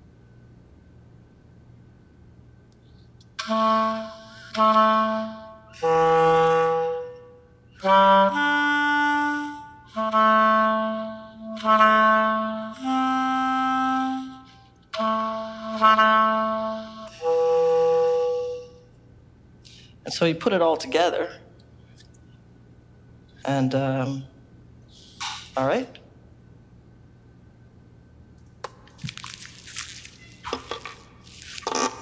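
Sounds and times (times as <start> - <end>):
solo clarinet held notes: 3.4 - 19.0.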